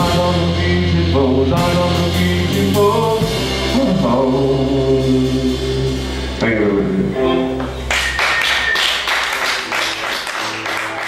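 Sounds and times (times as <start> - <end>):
man singing: 0.0 - 7.6
live rock band playing: 0.0 - 11.0.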